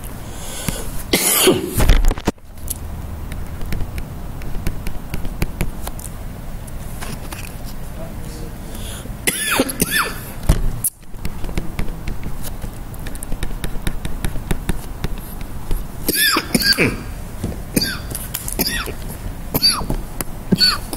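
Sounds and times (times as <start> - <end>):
low room hum: 0.0 - 20.9
stylus tapping on tablet screen: 3.2 - 6.0, 11.0 - 15.8.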